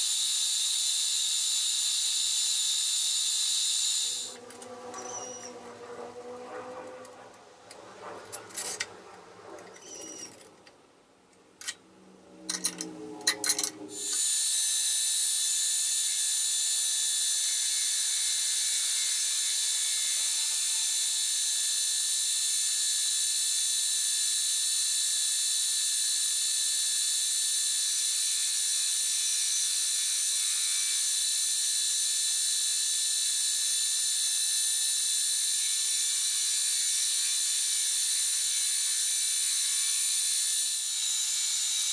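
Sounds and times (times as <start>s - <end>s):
milling machine cutting steel: 3.5s - 10.6s
metal clinks and knocks: 4.4s - 10.7s, 12.5s - 13.8s.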